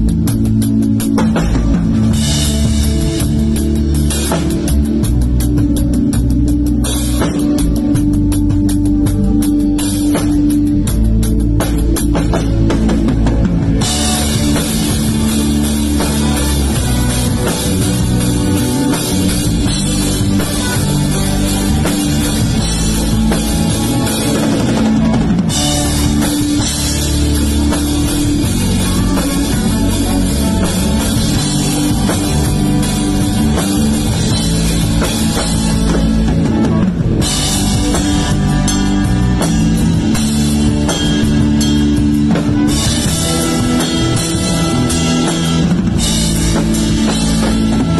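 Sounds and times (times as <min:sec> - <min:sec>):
guitar: 0:00.0 - 0:47.9
rock band playing: 0:00.0 - 0:47.9
cymbals: 0:13.3 - 0:47.9.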